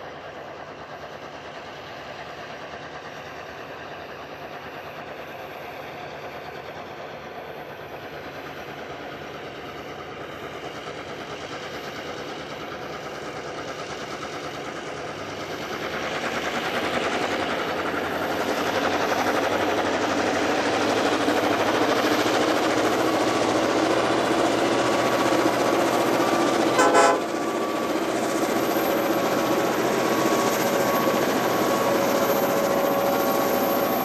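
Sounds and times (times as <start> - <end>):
diesel locomotive engines under load: 0.0 - 34.0.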